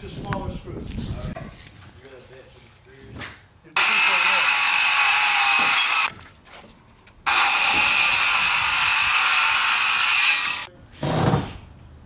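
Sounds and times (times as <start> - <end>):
circular saw cutting wood: 3.8 - 6.1, 7.3 - 10.7.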